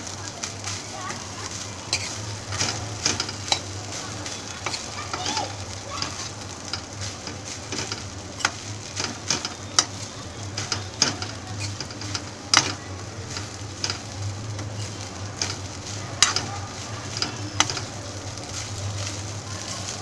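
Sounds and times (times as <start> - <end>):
food sizzling: 0.0 - 20.0
spatula scraping metal wok: 1.5 - 20.0
spatula clinking against pan: 1.9 - 3.7, 6.0 - 16.5.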